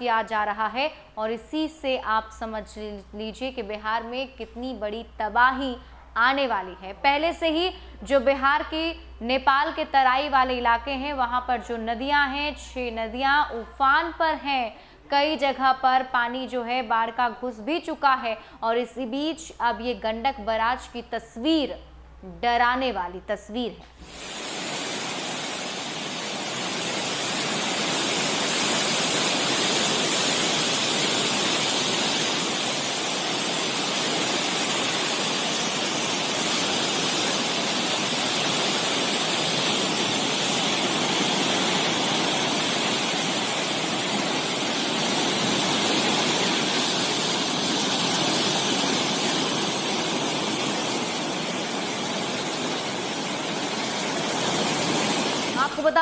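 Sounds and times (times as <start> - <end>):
churning water rushing: 24.0 - 56.0.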